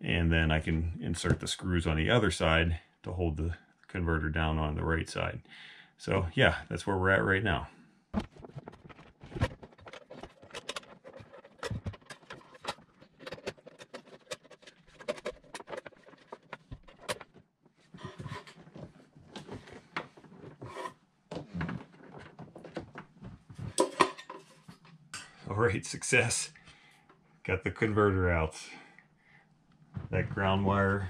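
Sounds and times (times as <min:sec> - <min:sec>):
metal box clicking and knocking: 0:08.2 - 0:17.4
wires scraping against panel: 0:08.5 - 0:21.0.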